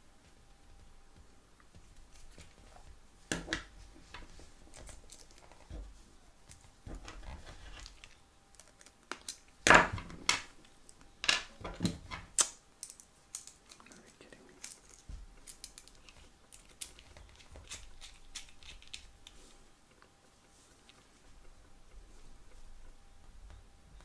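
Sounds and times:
small clicks and knocks of tools: 10.3s - 20.1s.

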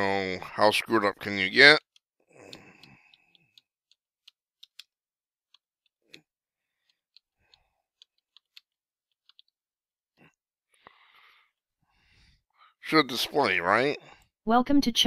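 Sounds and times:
computer keyboard typing: 1.6s - 6.0s.

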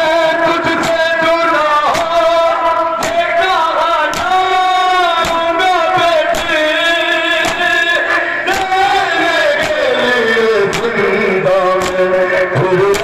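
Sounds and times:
men chanting in unison: 0.0s - 13.0s
hands striking chests: 3.0s - 3.3s, 4.1s - 4.4s, 5.2s - 5.5s, 8.5s - 10.0s, 10.7s - 11.0s, 11.8s - 12.1s.

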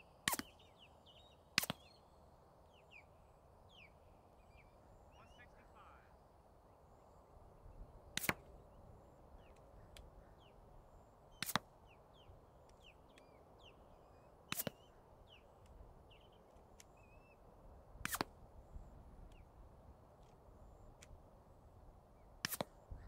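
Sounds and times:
suppressed pistol shots: 0.3s - 0.6s, 1.6s - 1.9s, 8.2s - 8.6s, 14.5s - 14.9s.

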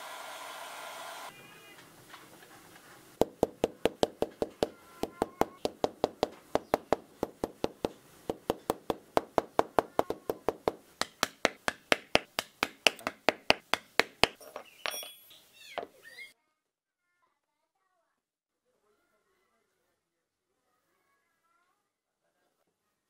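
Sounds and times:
hammer tapping leather: 3.2s - 14.4s.

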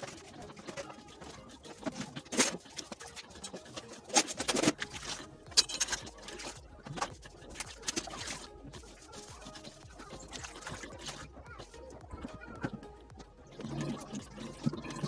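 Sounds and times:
knocks and patter at steel sink: 0.0s - 15.0s.

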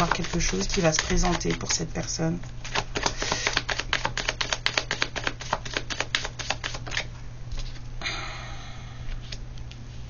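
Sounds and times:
cards being shuffled: 0.0s - 1.8s, 2.6s - 7.8s.

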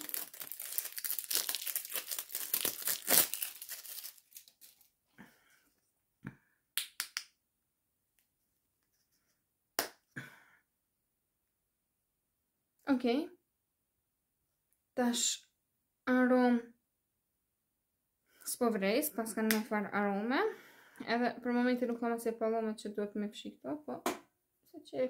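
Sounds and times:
plastic wrapping tearing and crinkling: 0.0s - 4.9s.

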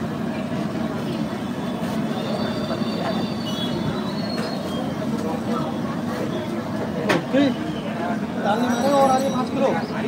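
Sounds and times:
crowd voices: 0.0s - 10.0s.

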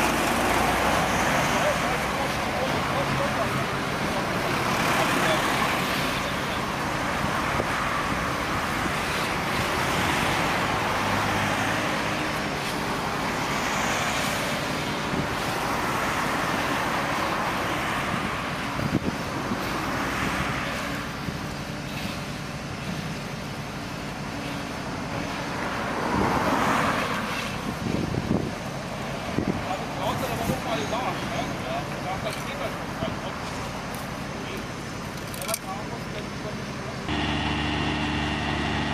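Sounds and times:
vehicles passing: 0.0s - 38.9s
truck engine humming: 37.0s - 38.9s.

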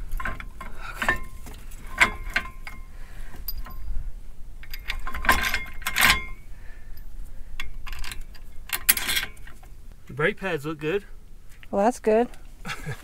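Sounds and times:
metal clinks and clicks: 0.0s - 4.0s, 4.6s - 6.4s, 7.0s - 9.7s
metal ringing: 0.0s - 4.0s, 4.6s - 9.8s.

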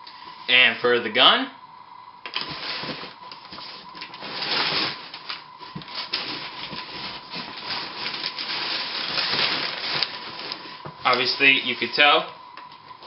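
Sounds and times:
packing paper rustling: 2.3s - 12.0s
cardboard scraping against cardboard: 2.4s - 10.8s.

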